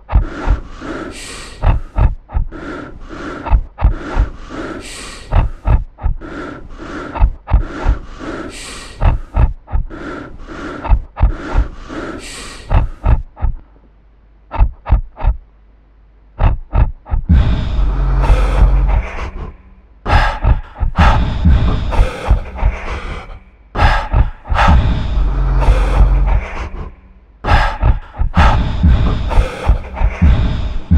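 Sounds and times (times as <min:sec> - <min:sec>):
loud low rumble with hum: 0:00.0 - 0:08.4, 0:09.0 - 0:12.1, 0:12.7 - 0:30.9
harsh breath-like bursts: 0:00.0 - 0:13.2, 0:17.3 - 0:30.9
deep thumps: 0:16.4 - 0:19.5, 0:20.1 - 0:26.9, 0:27.5 - 0:30.9.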